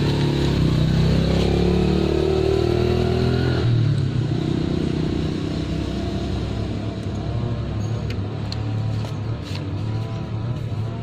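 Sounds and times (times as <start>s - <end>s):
vehicle engine running: 3.9s - 11.0s.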